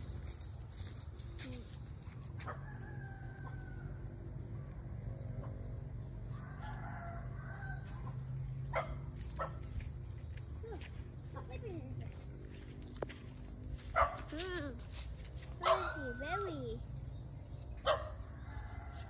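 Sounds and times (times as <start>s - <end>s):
steady low rumble: 0.0s - 15.7s
rooster crowing: 2.5s - 4.2s, 6.3s - 8.2s.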